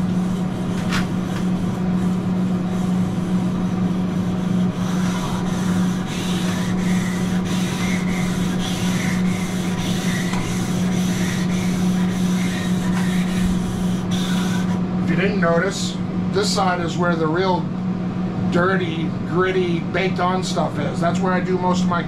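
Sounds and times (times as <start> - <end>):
grill brick scrubbing griddle: 0.0 - 15.2
steady low hum: 0.0 - 22.0.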